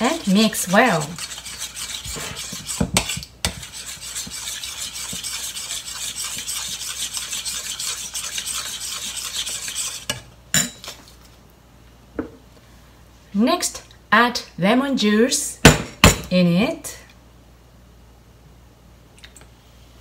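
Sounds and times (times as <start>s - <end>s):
spoon stirring in metal bowl: 0.0s - 11.0s.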